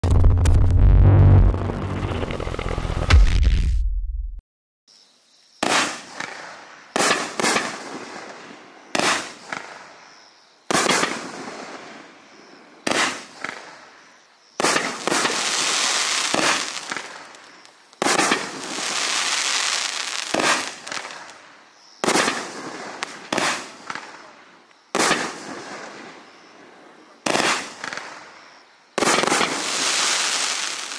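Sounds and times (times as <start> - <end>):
firework shots banging and hissing: 5.6 - 10.1, 10.7 - 21.4, 22.0 - 24.3, 24.9 - 26.4, 27.2 - 28.4, 29.0 - 30.9.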